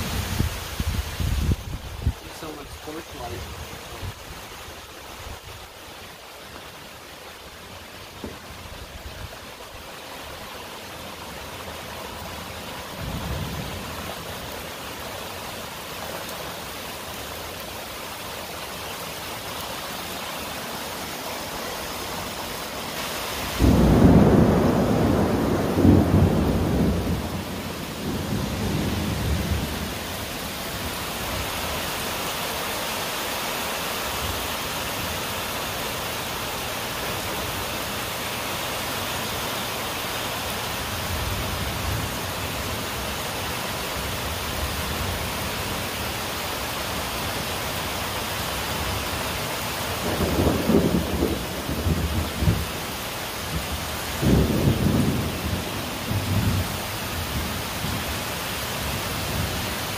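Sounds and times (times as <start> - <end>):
steady rain falling: 0.0 - 59.9
thunder rumbling: 23.6 - 30.0, 50.0 - 52.7, 53.5 - 58.0.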